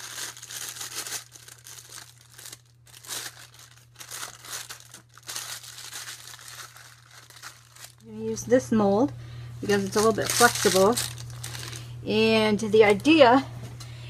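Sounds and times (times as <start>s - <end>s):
plastic piping bag crinkling: 0.0s - 8.5s, 9.6s - 12.0s
plastic gloves rustling: 0.0s - 9.0s, 9.6s - 13.2s
steady low hum: 0.0s - 14.0s.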